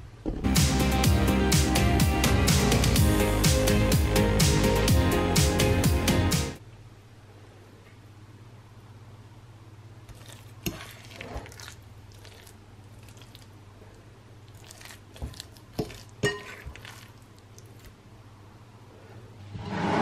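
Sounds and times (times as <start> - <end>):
fork scraping ceramic bowl: 10.1 - 13.4, 14.6 - 17.9.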